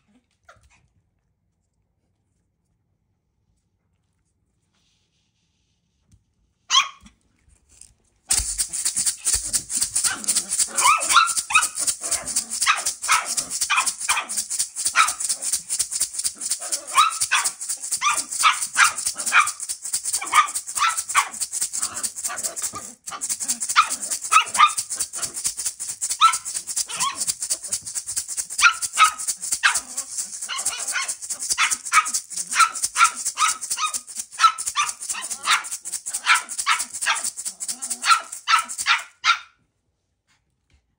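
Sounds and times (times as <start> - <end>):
puppy barking: 6.7 - 7.1, 8.3 - 39.6
maracas rattling: 7.7 - 39.4.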